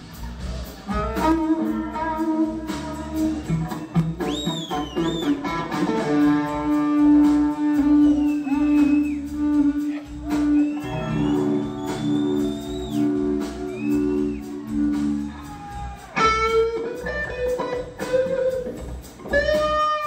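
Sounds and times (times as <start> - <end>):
bass guitar: 0.0 - 20.0
drums: 0.0 - 20.0.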